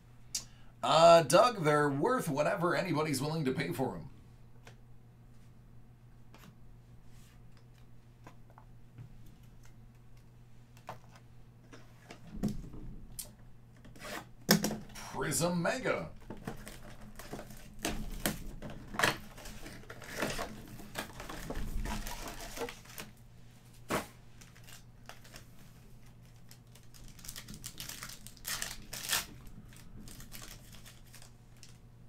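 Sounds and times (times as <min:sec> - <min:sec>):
foil card packs crinkling and tearing: 0:16.2 - 0:23.2, 0:23.8 - 0:31.8.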